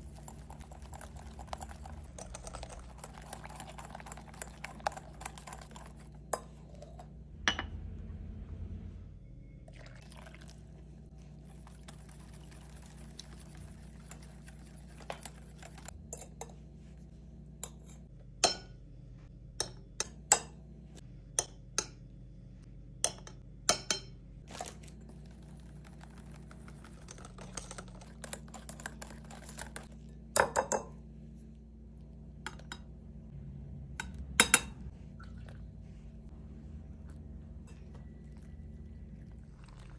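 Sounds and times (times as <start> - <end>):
whisk clinking against glass bowl: 0.1 - 7.0.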